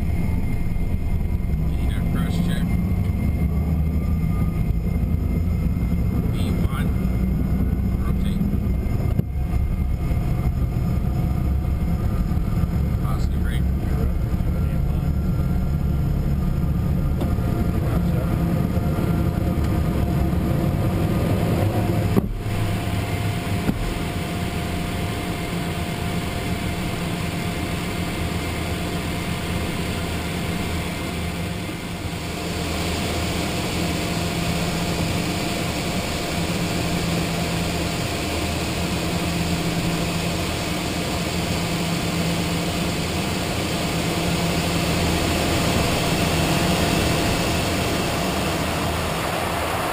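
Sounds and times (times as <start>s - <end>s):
jet engines: 0.0s - 49.9s
rushing airflow: 43.0s - 49.9s.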